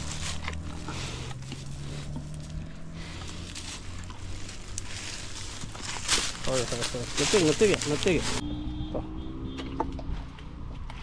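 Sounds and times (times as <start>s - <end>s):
light rustling: 0.0s - 8.4s
vehicle engine hum: 0.0s - 11.0s.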